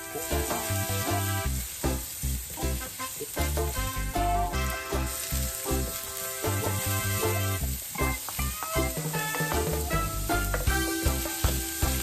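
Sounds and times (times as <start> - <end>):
background music with bass line: 0.0 - 12.0
garlic sizzling in hot oil: 0.0 - 12.0
wooden spatula stirring: 0.0 - 12.0.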